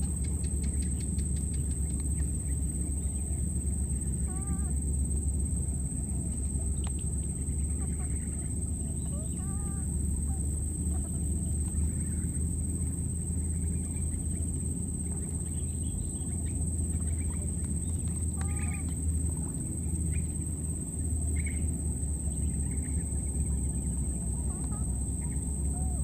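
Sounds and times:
short chirping calls: 0:00.0 - 0:03.4
steady high-pitched whine: 0:00.0 - 0:26.0
steady low rumble: 0:00.0 - 0:26.0.

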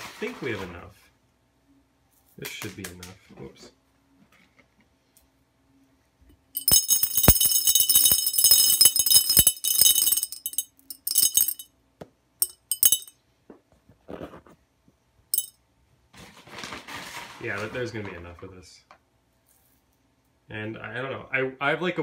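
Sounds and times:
gravel clattering into glass jar: 0:06.6 - 0:11.6, 0:12.4 - 0:13.1.

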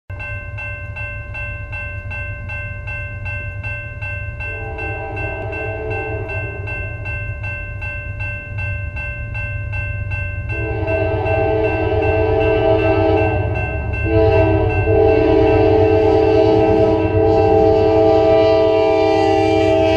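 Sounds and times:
crossing bell ringing: 0:00.1 - 0:19.9
low train rumble: 0:00.1 - 0:19.9
locomotive air horn blasts: 0:04.5 - 0:06.6, 0:10.6 - 0:19.9.

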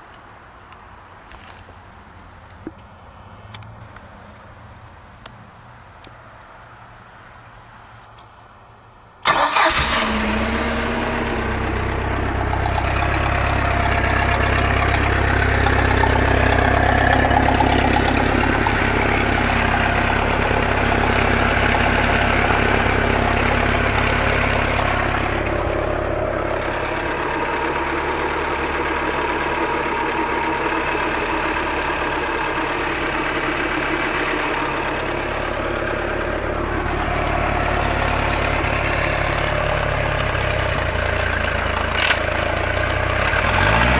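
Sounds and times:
boat engine idling: 0:09.4 - 0:43.9.

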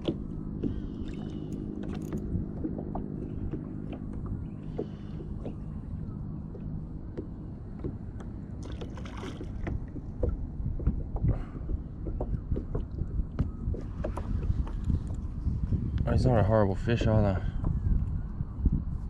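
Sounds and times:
water slapping against kayak hull: 0:00.0 - 0:05.7, 0:06.5 - 0:15.6
low rumble: 0:00.0 - 0:19.0
wind on microphone: 0:00.0 - 0:19.0.

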